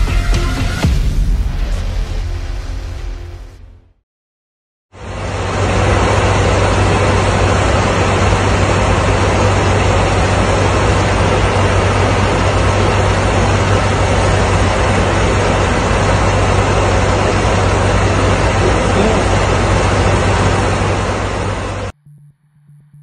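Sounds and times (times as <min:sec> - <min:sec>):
aircraft cabin airflow and engines: 0:04.9 - 0:22.0
low hum: 0:05.0 - 0:23.0.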